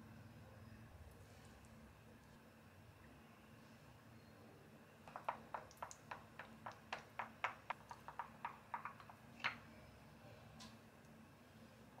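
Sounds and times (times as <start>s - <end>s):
wooden spoon tapping glass bowl: 5.1s - 9.6s.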